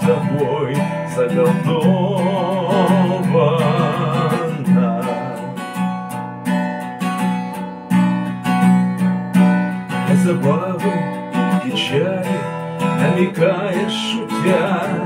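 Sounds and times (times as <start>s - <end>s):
man singing: 0.0s - 5.9s, 9.9s - 15.0s
acoustic guitar strumming: 0.0s - 15.0s.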